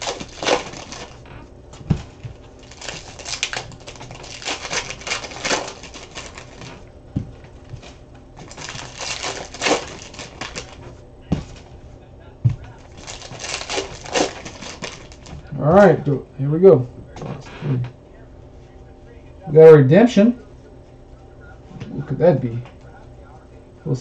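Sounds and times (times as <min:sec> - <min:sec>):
plastic wrappers crinkling: 0:00.0 - 0:01.4, 0:02.2 - 0:11.7, 0:12.6 - 0:15.6
cards rustling: 0:00.0 - 0:15.6.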